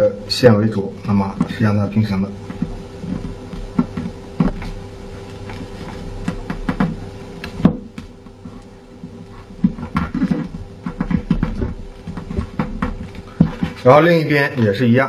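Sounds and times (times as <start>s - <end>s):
faint steady hum: 0.0s - 15.0s
paper crinkling and tapping: 2.4s - 13.9s.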